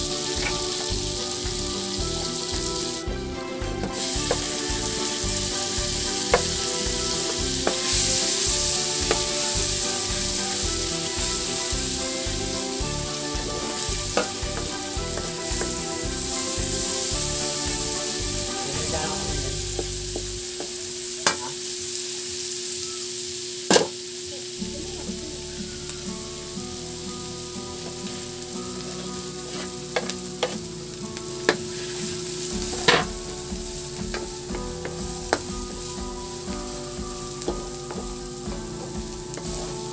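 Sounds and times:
ginger and onion sizzling in oil: 0.0s - 39.9s
wooden spatula knocking on wok: 0.4s - 18.9s, 19.5s - 21.4s, 32.6s - 39.8s.

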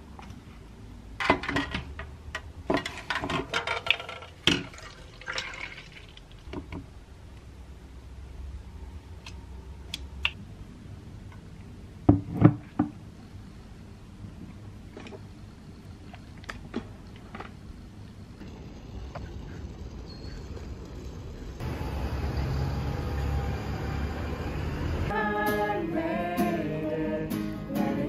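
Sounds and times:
milk pouring into bottle: 4.7s - 6.3s.

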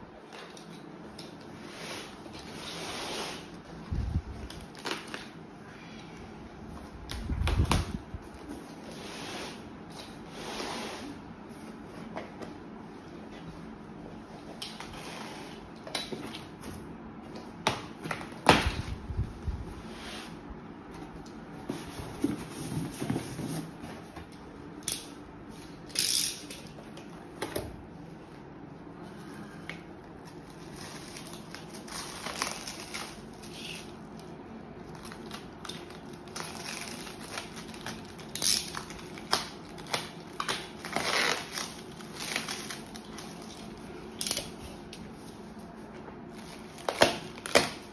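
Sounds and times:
cardboard flaps scraping: 21.0s - 24.3s
plastic wrap crinkling: 30.3s - 34.2s, 34.8s - 45.5s.

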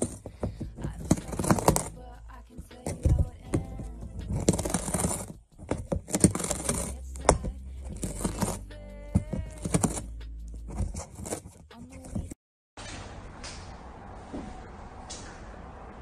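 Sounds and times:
rustling: 0.0s - 12.4s.

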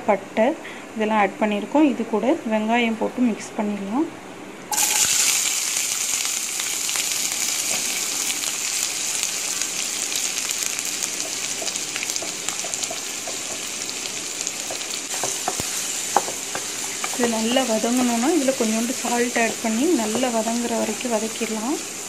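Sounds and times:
onions sizzling in hot oil: 4.7s - 22.0s.

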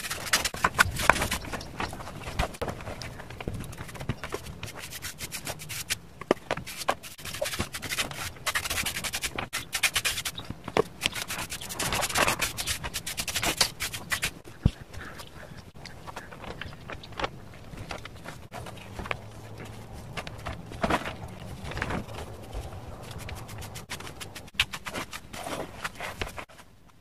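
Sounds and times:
brush scratching on cement: 3.8s - 6.0s, 6.6s - 14.4s, 22.2s - 26.4s.

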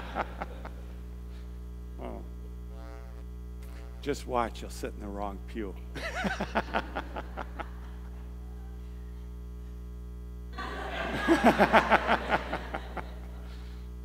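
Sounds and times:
person laughing: 0.0s - 0.9s, 6.0s - 8.3s, 10.6s - 13.6s
electrical hum: 0.0s - 14.0s.

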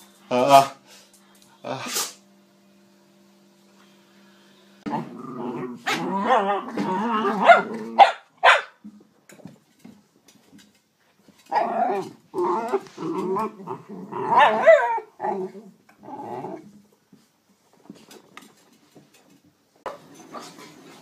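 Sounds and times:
dogs growling: 4.9s - 8.0s, 11.5s - 16.8s.

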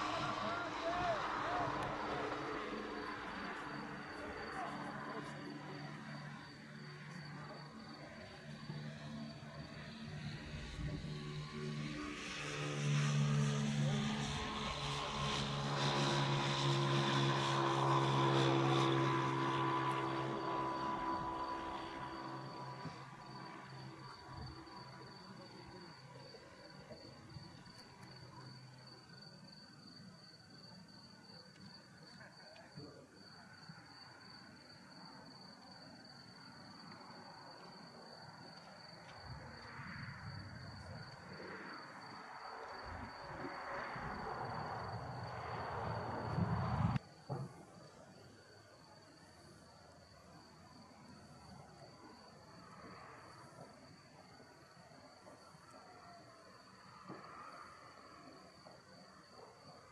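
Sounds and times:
passing engine drone: 0.0s - 27.0s, 39.2s - 47.0s
crickets chirping: 0.0s - 59.9s
broad rushing noise: 43.0s - 47.0s.

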